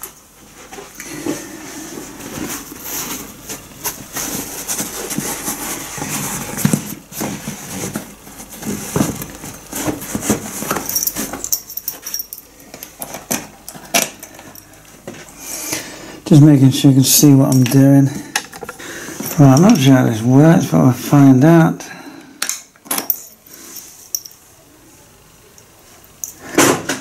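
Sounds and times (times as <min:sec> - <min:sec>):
bag rustling: 0:00.8 - 0:12.4.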